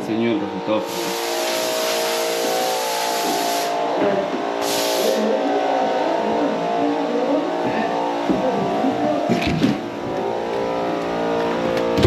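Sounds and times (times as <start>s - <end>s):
high hiss: 0.8s - 3.9s, 4.6s - 5.3s.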